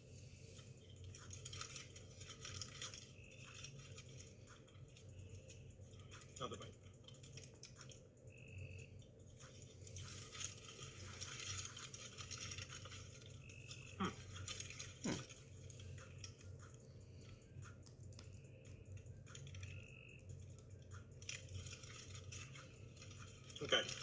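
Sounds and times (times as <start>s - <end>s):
low hum: 0.0s - 24.0s
chewing and crunching: 0.5s - 24.0s
paper wrapper crackling: 0.8s - 8.0s, 9.0s - 16.8s, 20.6s - 24.0s.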